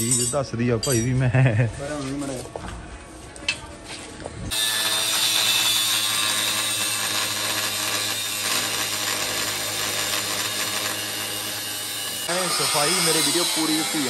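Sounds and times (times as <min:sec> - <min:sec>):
power tool cutting steel plate: 0:04.5 - 0:14.0.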